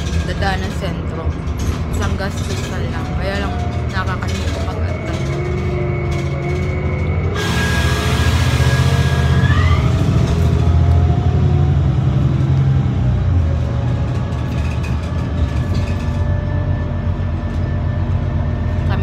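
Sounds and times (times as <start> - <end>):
bus engine rumbling: 0.0 - 19.0
engine whine: 0.0 - 19.0.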